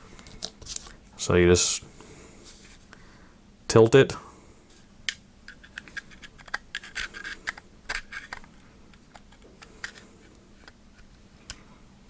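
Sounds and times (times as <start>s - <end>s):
pistol parts clicking and scraping: 5.1s - 10.8s.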